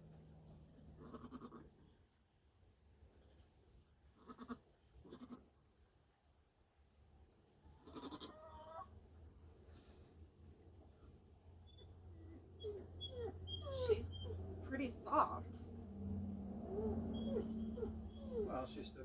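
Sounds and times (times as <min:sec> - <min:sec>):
goat bleating quietly: 0:01.0 - 0:01.8, 0:04.1 - 0:05.5, 0:07.8 - 0:08.6.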